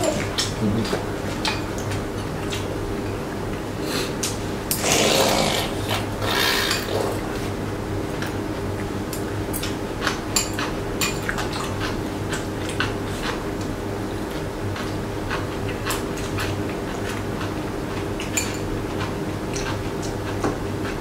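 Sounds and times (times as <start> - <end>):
chewing and mouth sounds: 0.0 - 4.4, 8.1 - 21.0
steady low hum: 0.0 - 21.0
chopsticks clinking against bowls: 10.4 - 11.6, 18.3 - 18.7.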